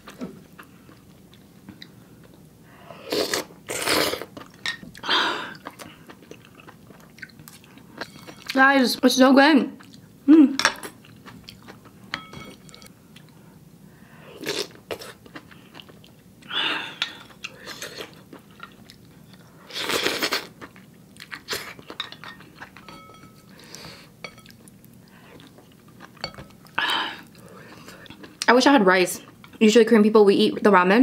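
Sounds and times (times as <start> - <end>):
soft chewing: 0.0 - 2.5, 4.1 - 8.6, 9.8 - 10.1, 10.8 - 13.6, 14.4 - 28.5.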